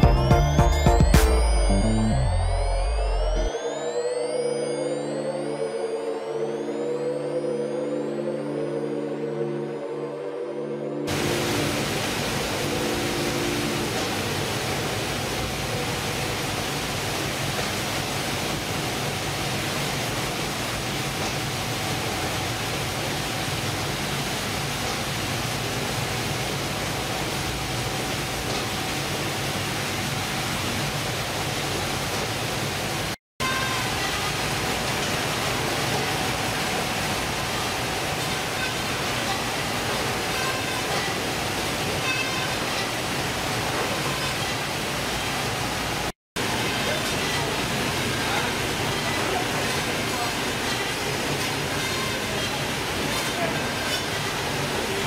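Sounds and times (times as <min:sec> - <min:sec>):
fish-processing machinery din: 0:11.1 - 0:33.0, 0:33.7 - 0:55.0.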